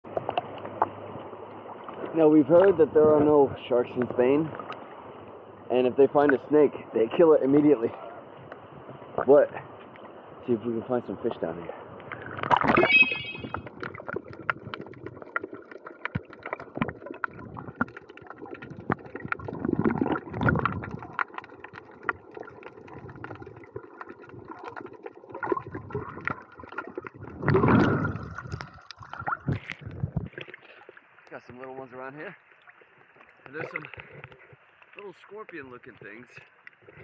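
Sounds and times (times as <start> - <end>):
underwater gurgling: 0.0 - 37.0
bubbles being exhaled: 12.1 - 31.0
crackle of small clicks: 13.6 - 27.2, 32.5 - 37.0.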